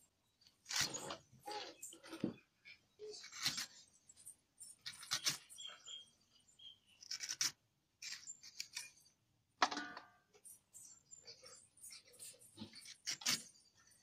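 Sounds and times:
knife scraping through mango: 0:00.6 - 0:02.3, 0:11.3 - 0:14.0.

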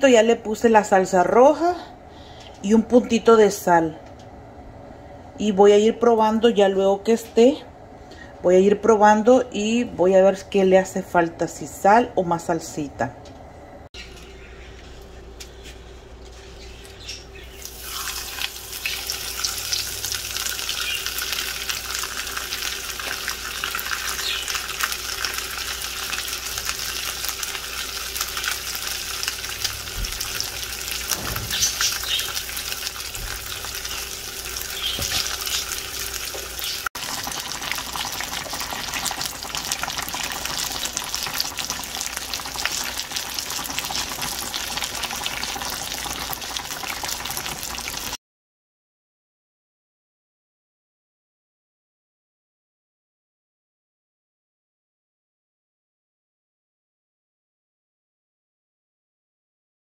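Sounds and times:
fish sizzling in hot oil: 0:17.5 - 0:48.2.

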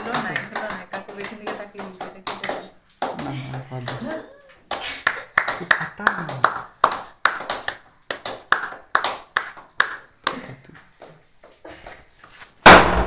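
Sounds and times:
group clapping in rhythm: 0:00.0 - 0:04.1, 0:04.7 - 0:10.6
party popper bang: 0:12.6 - 0:13.0.

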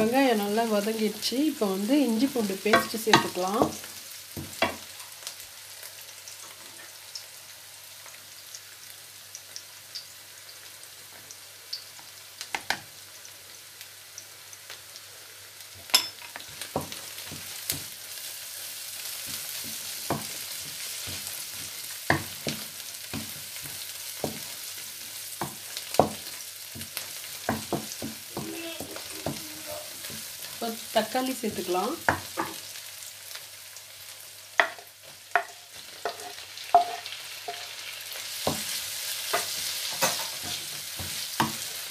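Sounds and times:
food sizzling in oil: 0:00.0 - 0:41.9
spatula scraping a pan: 0:35.4 - 0:41.9.

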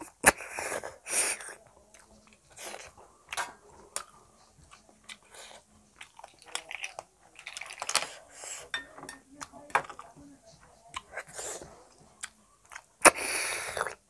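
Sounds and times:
person chewing food: 0:00.0 - 0:08.8, 0:10.8 - 0:14.0
wet mouth sounds: 0:12.2 - 0:14.0.

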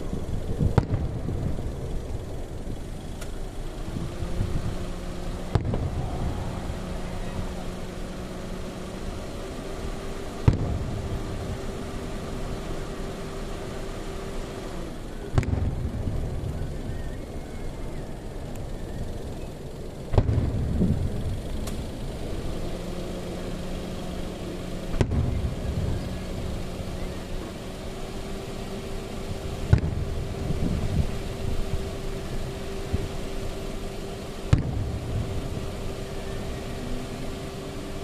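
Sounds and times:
firework shells booming: 0:00.0 - 0:02.4, 0:04.4 - 0:09.0, 0:10.2 - 0:12.9, 0:15.3 - 0:16.6, 0:20.1 - 0:21.8, 0:24.9 - 0:26.4, 0:29.4 - 0:36.0
low rumble: 0:00.0 - 0:12.9
steady low hum: 0:00.0 - 0:38.0.

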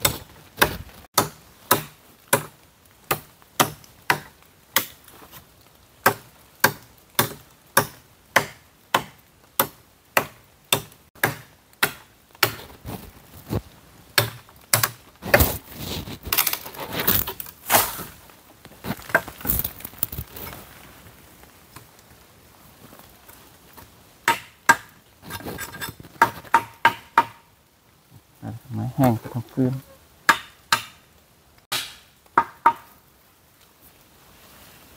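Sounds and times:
blade chopping dry wood: 0:00.0 - 0:05.0, 0:06.0 - 0:12.8
wood cracking and rustling: 0:12.4 - 0:24.0.

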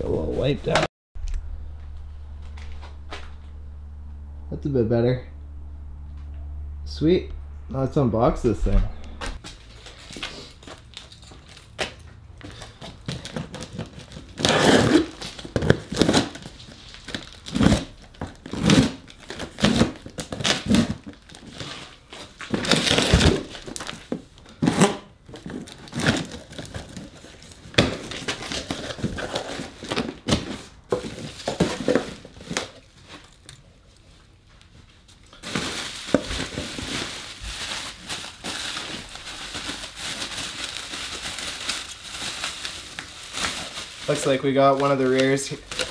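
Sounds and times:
bubble wrap crinkling: 0:09.3 - 0:45.9
cardboard box tearing and scraping: 0:13.2 - 0:24.0, 0:24.6 - 0:32.8.

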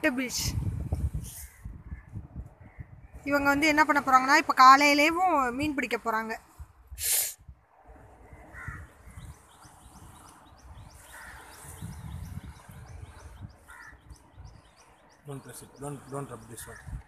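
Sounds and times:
crows cawing: 0:08.5 - 0:09.2, 0:11.0 - 0:11.7, 0:13.6 - 0:14.1.

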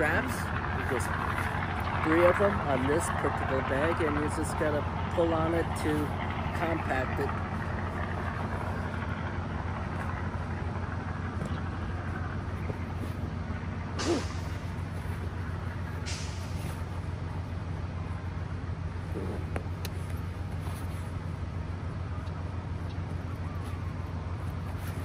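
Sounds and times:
low engine hum: 0:00.0 - 0:25.0
straps zipping through buckles: 0:13.9 - 0:17.1.

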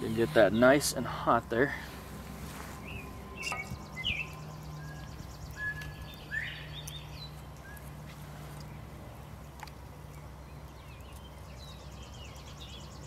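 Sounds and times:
birds chirping and whistling: 0:00.0 - 0:01.2, 0:02.6 - 0:08.8, 0:10.2 - 0:13.0.

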